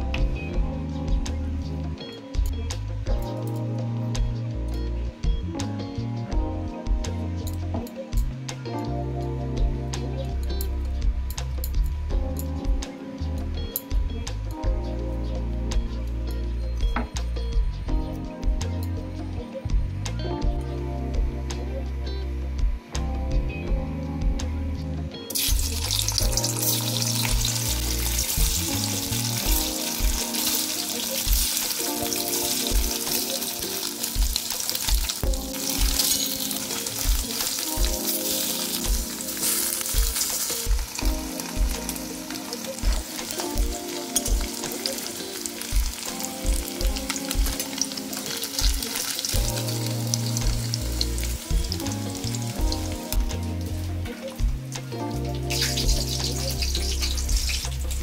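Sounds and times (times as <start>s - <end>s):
background music with a beat: 0.0s - 58.0s
cheese sizzling in hot oil: 25.3s - 58.0s.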